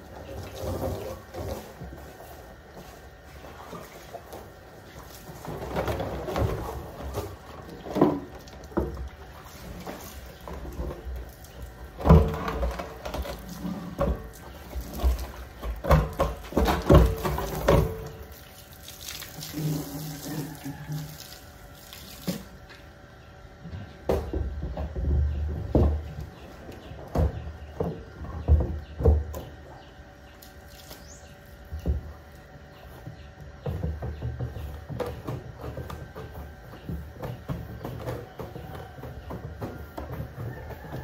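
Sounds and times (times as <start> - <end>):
hose water spraying on plastic: 0.0 - 22.6.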